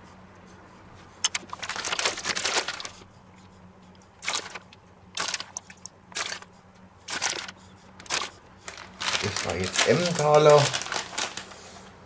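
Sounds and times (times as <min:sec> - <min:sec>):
plastic bag crinkling: 0:01.3 - 0:03.0, 0:07.1 - 0:12.0.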